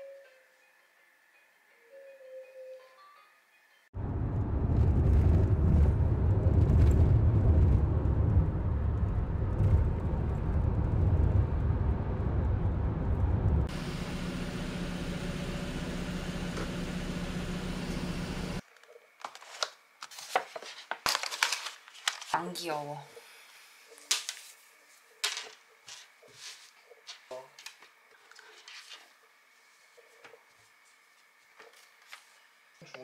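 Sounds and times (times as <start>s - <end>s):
car cabin road rumble: 4.0s - 15.0s
low hum: 4.0s - 18.6s.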